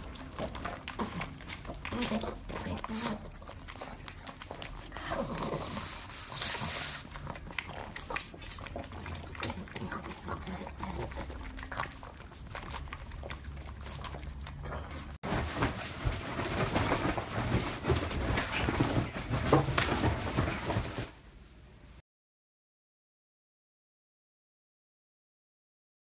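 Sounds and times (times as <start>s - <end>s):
dog noises: 0.0s - 21.1s
dog scrambling on bedding: 15.2s - 21.2s.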